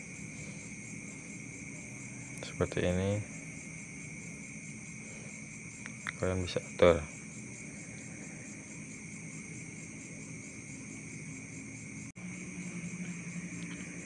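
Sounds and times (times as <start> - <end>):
crickets chirring: 0.0 - 14.0
low hum: 7.5 - 14.0.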